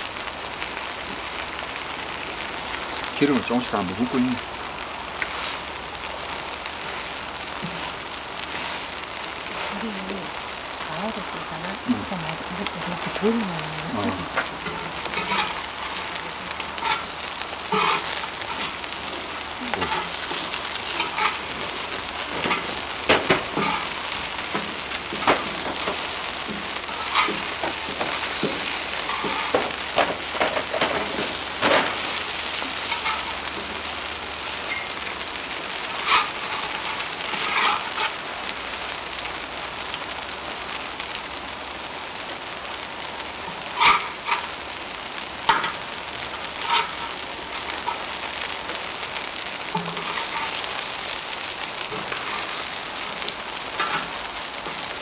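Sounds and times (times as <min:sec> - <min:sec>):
pancakes sizzling in oil: 0:00.0 - 0:55.0
spatulas scraping iron griddle: 0:06.4 - 0:10.7, 0:11.7 - 0:38.4, 0:43.6 - 0:44.6, 0:45.4 - 0:55.0.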